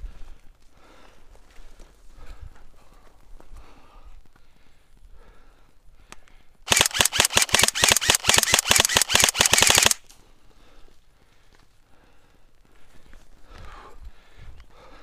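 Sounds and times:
airsoft rifle full-auto burst: 0:06.7 - 0:10.1.

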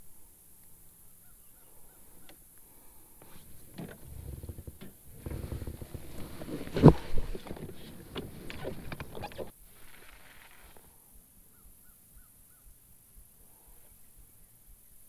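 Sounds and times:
small clicks and rustles: 0:02.2 - 0:11.0.

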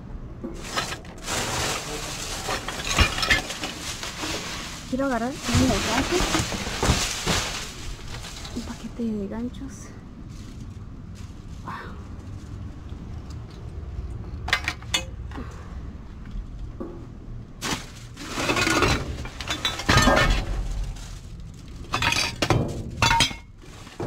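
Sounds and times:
clothes hangers and glass clattering: 0:00.6 - 0:08.9, 0:14.5 - 0:15.3, 0:17.6 - 0:21.1, 0:21.8 - 0:24.0.

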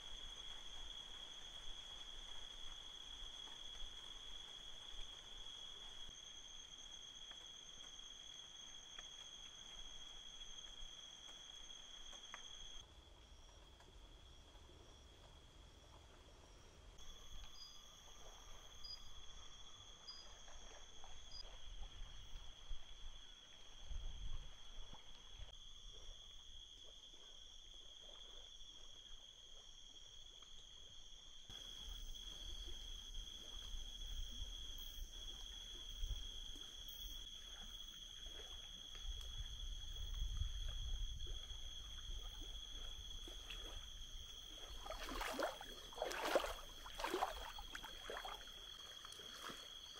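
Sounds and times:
insects trilling: 0:17.0 - 0:49.9
wind rumble on microphone: 0:21.6 - 0:25.4, 0:38.9 - 0:44.6.

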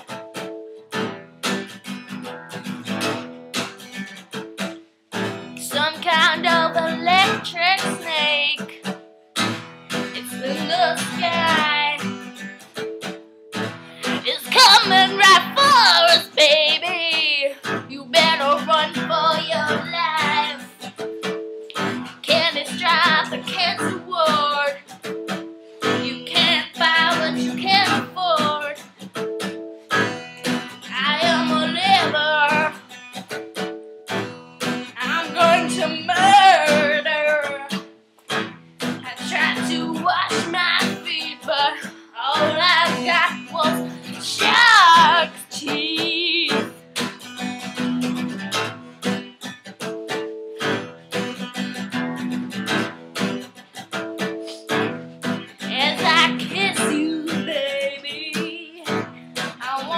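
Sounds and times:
acoustic guitar strumming: 0:00.0 - 0:59.9
woman singing: 0:05.4 - 0:08.9, 0:10.0 - 0:12.4, 0:14.0 - 0:21.0, 0:21.8 - 0:25.2, 0:25.8 - 0:28.9, 0:30.6 - 0:32.9, 0:34.7 - 0:37.9, 0:38.9 - 0:46.8, 0:54.4 - 0:59.9.

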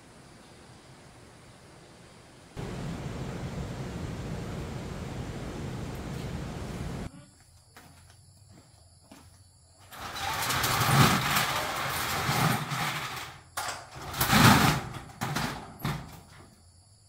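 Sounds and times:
metal doors rattling shut: 0:09.9 - 0:16.4.

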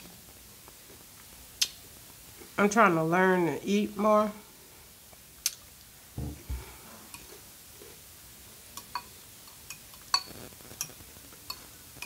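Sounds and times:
fork clinking on glass bowl: 0:08.8 - 0:11.6.

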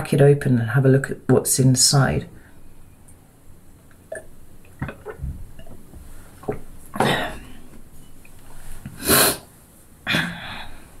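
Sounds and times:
woman drinking water: 0:03.9 - 0:09.4
breathy exhalations: 0:10.1 - 0:11.0.

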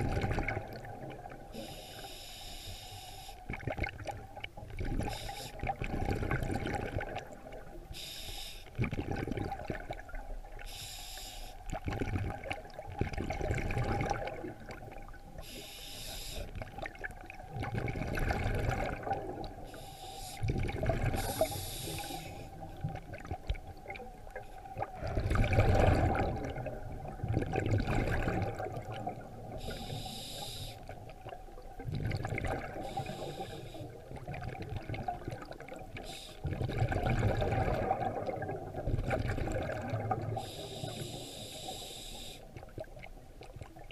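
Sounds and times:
exhaled bubbles rumbling: 0:00.0 - 0:01.6, 0:03.4 - 0:07.9, 0:08.7 - 0:10.7, 0:11.6 - 0:15.4, 0:16.5 - 0:29.9, 0:30.8 - 0:40.6, 0:42.5 - 0:43.9
regulator inhalation hiss: 0:01.6 - 0:03.4, 0:05.1 - 0:05.6, 0:08.0 - 0:08.7, 0:10.7 - 0:11.6, 0:15.4 - 0:16.5, 0:19.7 - 0:20.5, 0:21.2 - 0:22.6, 0:29.6 - 0:30.9, 0:32.8 - 0:34.0, 0:36.0 - 0:36.4, 0:40.4 - 0:42.5.

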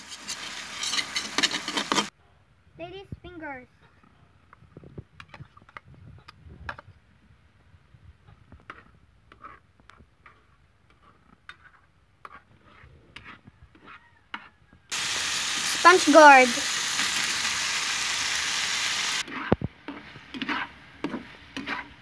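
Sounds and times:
utensils scraping bowl and wok: 0:00.0 - 0:02.1, 0:08.6 - 0:22.0.

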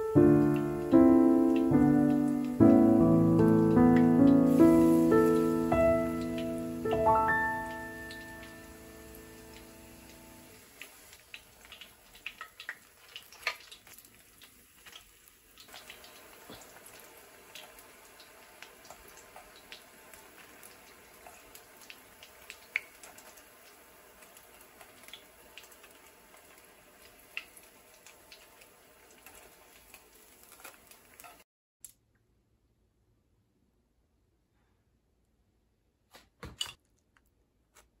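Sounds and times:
low steady hiss: 0:00.0 - 0:13.2
faint clicks and drips: 0:09.3 - 0:32.0.

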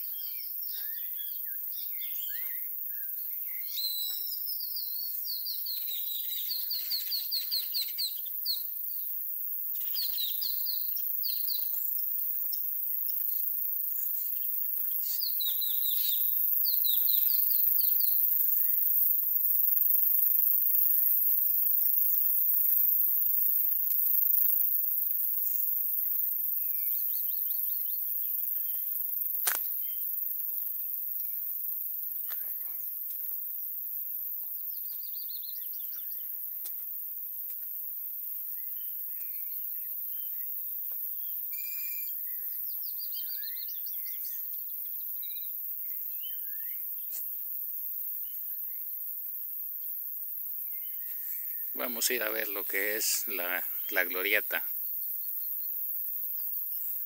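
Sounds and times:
birds chirping: 0:00.0 - 0:09.1, 0:09.8 - 0:21.4, 0:50.7 - 0:54.6
steady high hiss: 0:06.8 - 0:34.9, 0:43.4 - 0:57.0.

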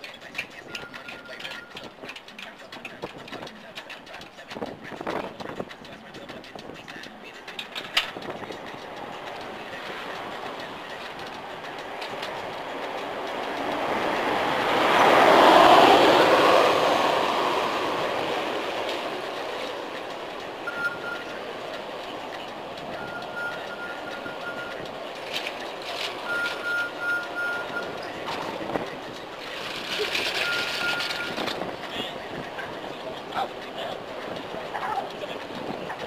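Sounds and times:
vehicle passing: 0:00.1 - 0:36.0
faint short beeps: 0:20.7 - 0:21.4, 0:23.0 - 0:24.8, 0:26.2 - 0:28.2, 0:30.4 - 0:31.4.

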